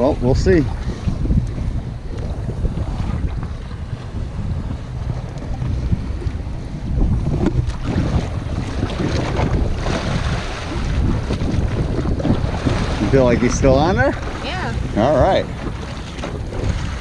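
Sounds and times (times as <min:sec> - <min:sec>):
waves splashing against boat: 0:00.0 - 0:17.0
wind buffeting microphone: 0:00.0 - 0:17.0.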